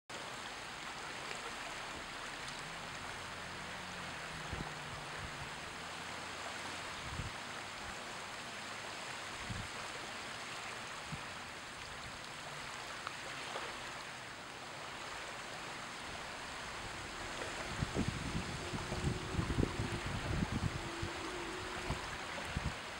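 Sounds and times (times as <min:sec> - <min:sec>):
water lapping on beach: 0:00.1 - 0:22.9
soft low bumps: 0:16.4 - 0:22.8.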